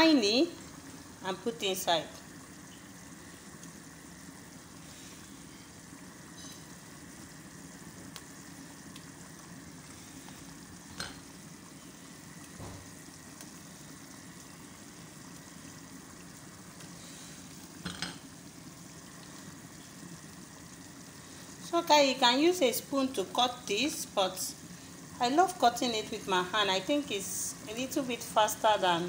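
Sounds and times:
stew simmering and bubbling: 0.0 - 29.0.

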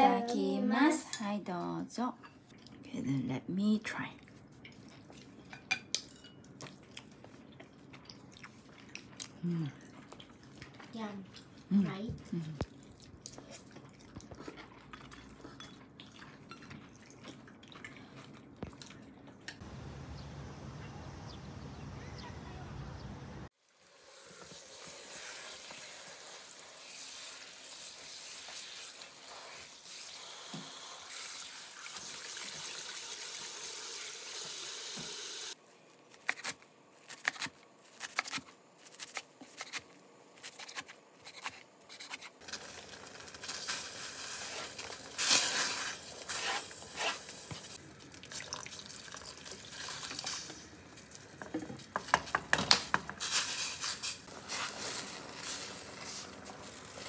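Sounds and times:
kitchen tap running: 29.8 - 35.6.

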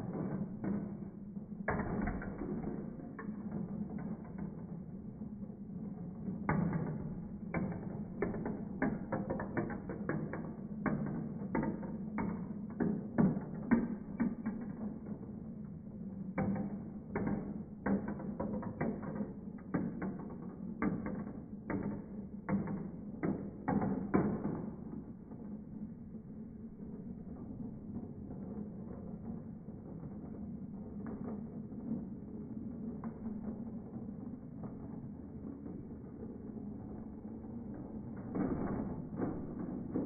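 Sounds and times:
low rolling rumble: 24.8 - 40.0.

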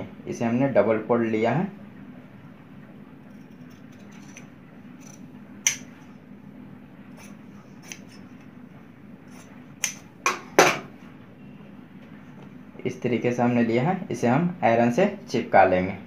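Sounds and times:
shears snipping stiff fabric: 7.2 - 8.2.

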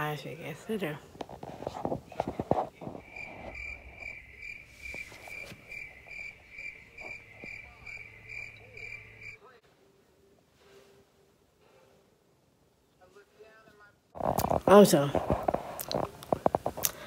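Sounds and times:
cricket chirping: 2.8 - 9.5.

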